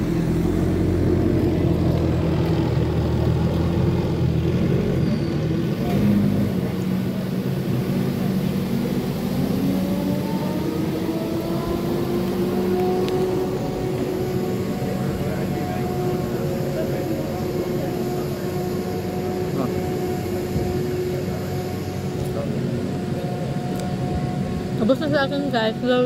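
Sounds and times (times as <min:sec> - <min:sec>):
vehicle engine humming: 0:00.0 - 0:26.0.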